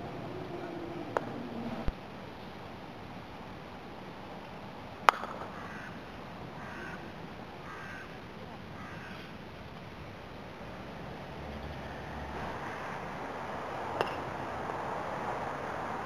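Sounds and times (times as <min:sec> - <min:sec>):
croquet mallet striking ball: 0:05.1 - 0:05.5
bird calling: 0:06.6 - 0:08.2.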